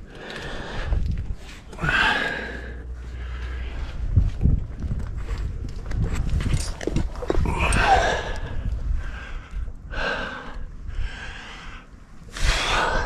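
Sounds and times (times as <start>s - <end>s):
person breathing hard: 0.0s - 4.4s, 7.5s - 13.0s.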